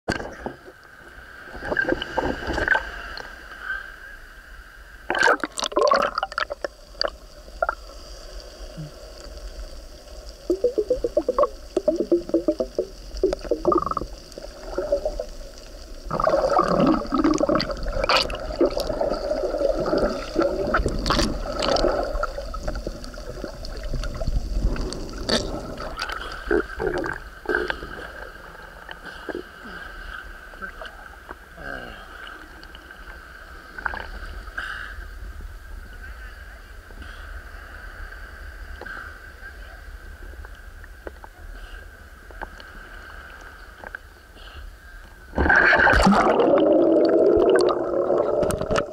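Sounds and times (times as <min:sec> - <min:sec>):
muffled water sloshing and gurgling: 0:00.1 - 0:03.6, 0:05.0 - 0:35.6, 0:45.2 - 0:48.9
bubbling bursts: 0:05.1 - 0:07.8, 0:10.5 - 0:15.4, 0:16.0 - 0:27.4, 0:45.4 - 0:48.9.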